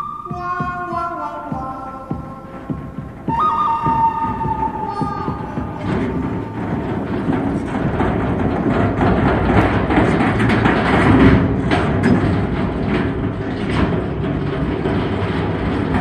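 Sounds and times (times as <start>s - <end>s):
heavy machine rumbling: 0.0s - 16.0s
track pads clanking: 0.0s - 16.0s.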